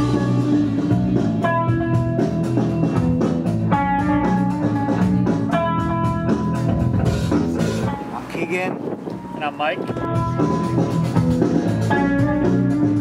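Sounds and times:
pop-rock band music: 0.0s - 13.0s.

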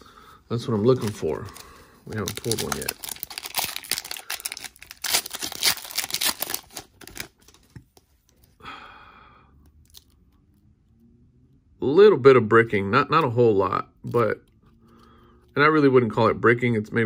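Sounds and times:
wrapper tearing and crinkling: 0.9s - 7.7s
person sighing: 8.6s - 9.6s.

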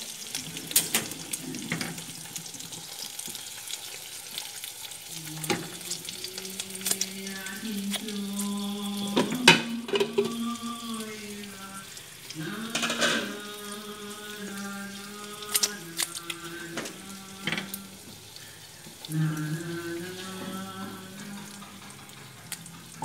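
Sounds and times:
eggs sizzling in hot oil: 0.0s - 23.0s
low steady humming tone: 5.1s - 23.0s.

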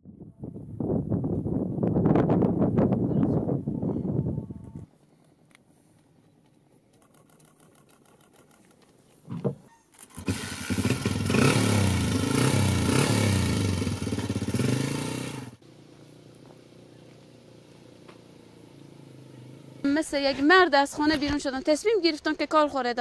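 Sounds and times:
motorcycle engine starting and revving: 9.9s - 21.2s.

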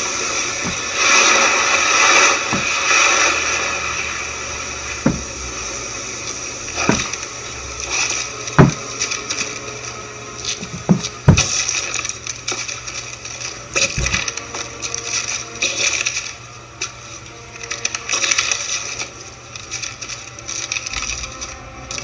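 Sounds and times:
boots thudding on wooden floor: 0.6s - 1.2s, 2.5s - 3.0s, 5.0s - 5.7s, 6.8s - 9.1s, 10.6s - 11.7s
knee thudding onto boards: 2.5s - 3.0s, 5.0s - 5.6s, 6.8s - 7.2s, 8.6s - 9.0s, 10.6s - 11.6s.

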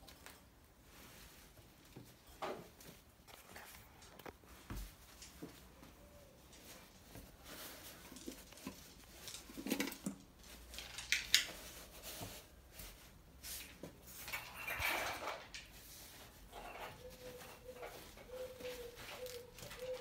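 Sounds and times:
cloth rustling: 15.8s - 20.0s.

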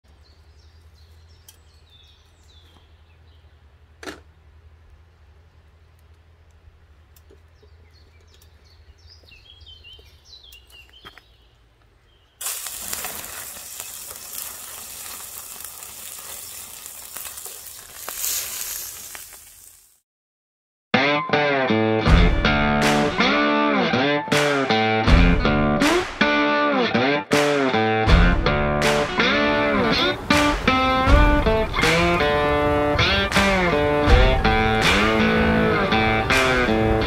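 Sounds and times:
faint birdsong: 0.1s - 12.4s
frying pan sizzling: 12.4s - 20.0s, 28.8s - 37.0s.

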